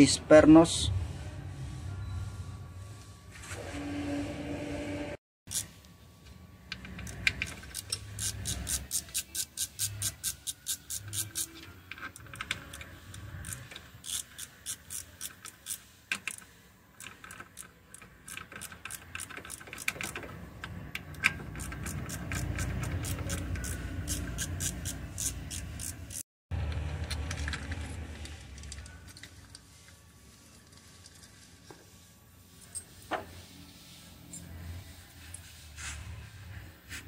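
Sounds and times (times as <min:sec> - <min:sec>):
socket ratchet clicking: 0:06.8 - 0:20.3, 0:21.0 - 0:26.2.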